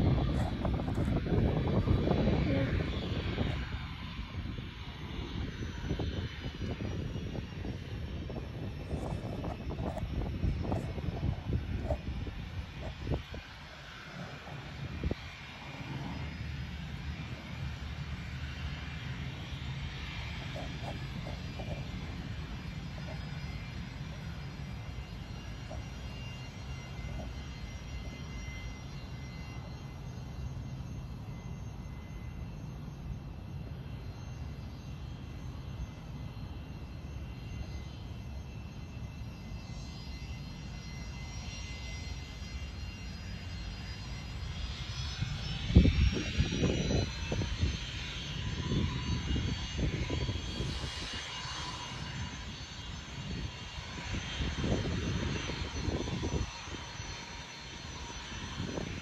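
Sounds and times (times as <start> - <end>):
wind buffeting microphone: 0.0 - 29.6, 43.8 - 59.0
distant jet engines whining: 0.0 - 59.0.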